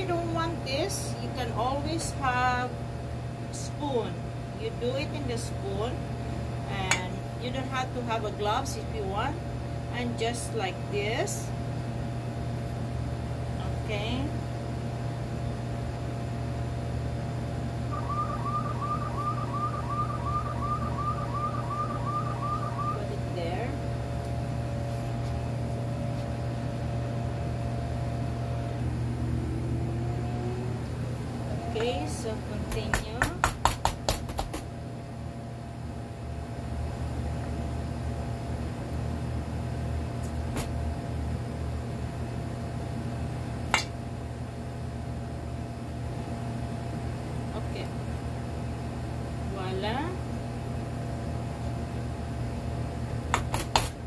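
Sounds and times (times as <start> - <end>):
steady low hum: 0.0 - 54.0
kitchen appliance humming: 15.9 - 24.8, 26.9 - 32.7
short high chirp: 17.9 - 23.0.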